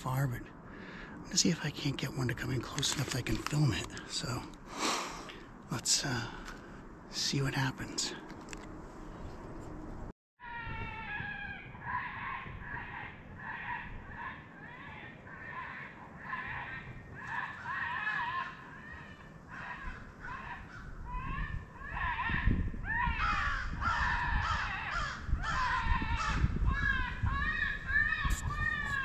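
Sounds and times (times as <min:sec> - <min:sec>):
crows cawing: 0:10.4 - 0:29.0.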